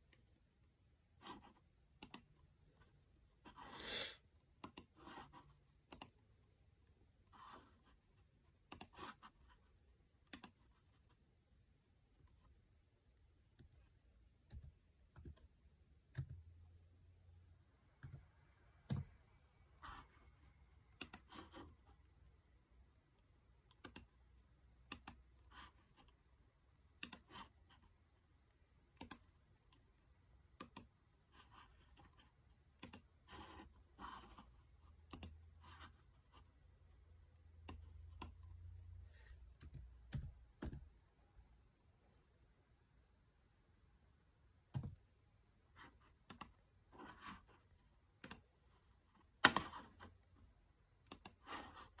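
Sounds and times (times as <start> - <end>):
laptop keyboard and mouse clicks: 2.0 - 2.3, 4.6 - 5.2, 5.8 - 6.2, 8.6 - 9.4, 10.3 - 10.6, 18.0 - 19.2, 21.0 - 21.6, 23.7 - 24.1, 24.8 - 25.2, 27.0 - 27.5, 28.9 - 29.3, 30.6 - 30.9, 32.8 - 33.5, 35.0 - 35.4, 39.6 - 40.9, 44.7 - 45.0, 46.2 - 46.6, 51.0 - 52.0.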